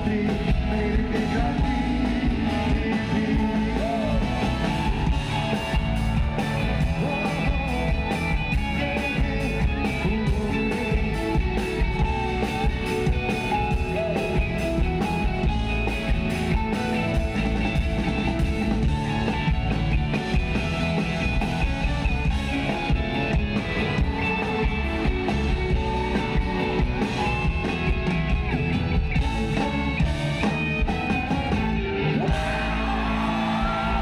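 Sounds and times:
person singing: 0.0 - 16.0, 21.2 - 27.9
electric guitar: 0.0 - 34.0
steady drum beat: 0.0 - 34.0.

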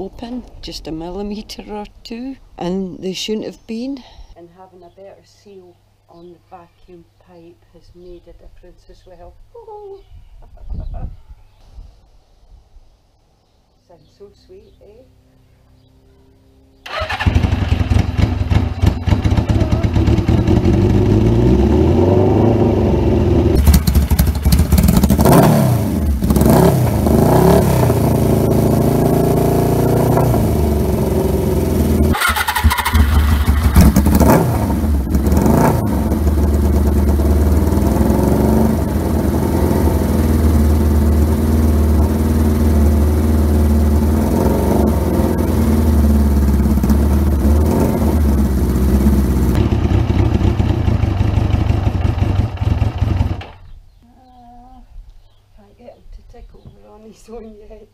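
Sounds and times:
motorcycle engine revving and idling: 16.8 - 53.8.

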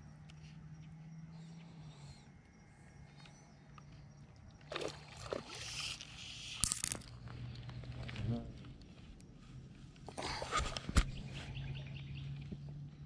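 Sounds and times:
fish splashing at water surface: 4.7 - 6.4.

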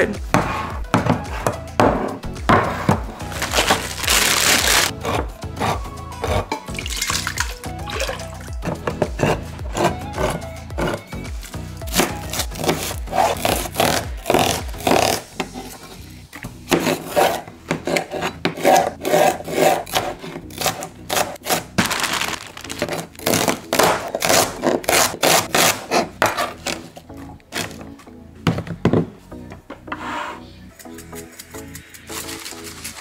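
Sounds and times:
background music: 0.0 - 33.0
knife chopping on cutting board: 16.7 - 21.6, 22.8 - 26.5.

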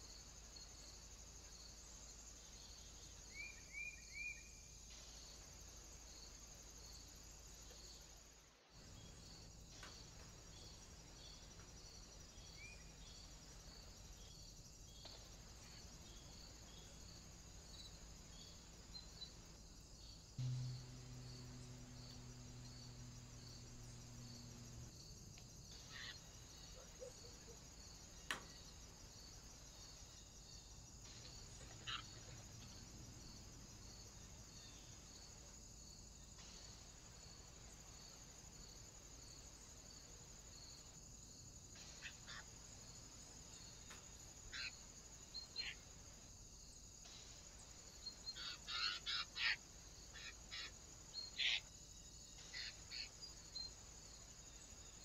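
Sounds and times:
faint insect chirping: 0.0 - 55.0
low background hiss: 0.0 - 55.0
low hum: 15.3 - 27.0.

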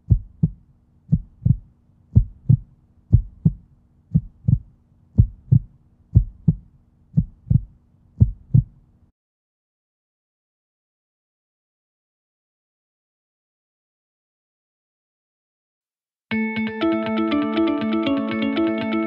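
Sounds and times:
heartbeat thumps: 0.0 - 8.8
faint steady hum: 0.0 - 9.1.

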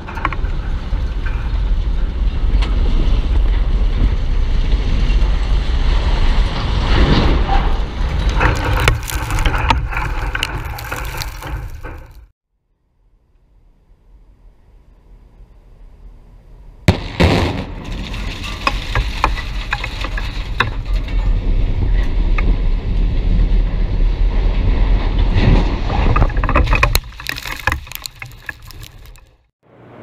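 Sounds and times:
concrete structure crashing rumble: 0.0 - 12.3, 16.9 - 29.4
explosive blast: 16.9 - 19.5.

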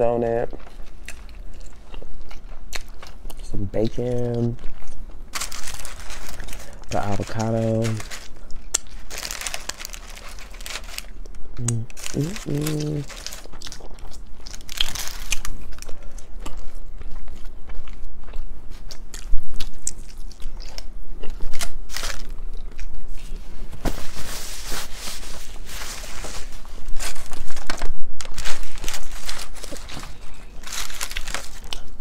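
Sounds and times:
chewing with crunches: 0.4 - 23.4.

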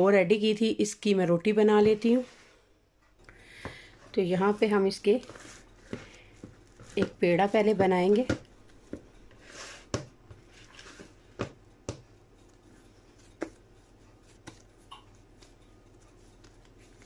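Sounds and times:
hands kneading dough: 1.6 - 17.0
dough slaps: 11.4 - 12.2, 13.2 - 13.6.

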